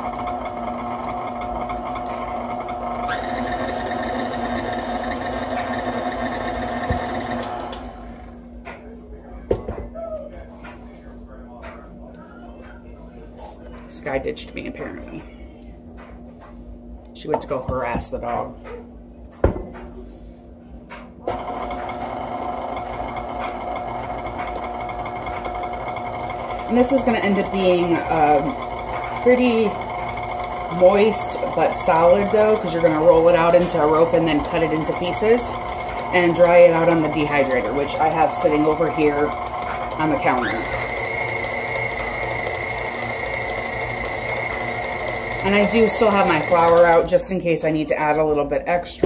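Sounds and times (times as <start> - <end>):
beater mixing batter: 0.0 - 8.4, 21.3 - 48.2
stand mixer motor running: 0.0 - 8.4, 21.3 - 47.3.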